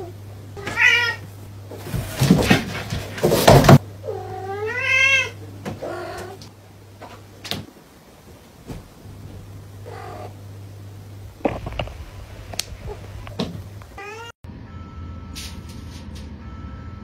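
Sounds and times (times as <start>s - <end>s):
scuffling and knocks: 1.7s - 3.8s, 8.3s - 9.6s.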